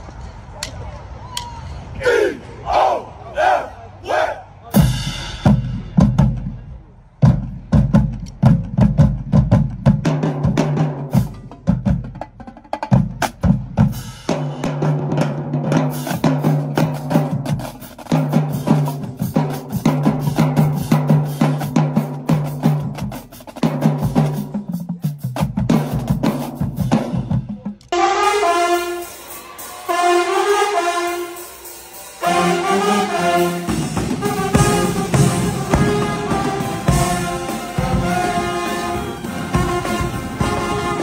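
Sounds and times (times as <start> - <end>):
people shouting calls: 0.6 - 4.8
drumline playing: 4.6 - 41.0.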